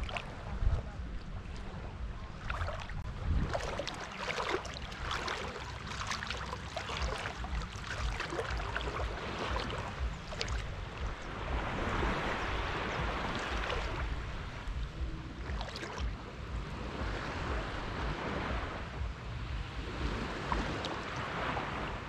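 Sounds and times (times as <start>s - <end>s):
sea water lapping and splashing: 0.0s - 22.0s.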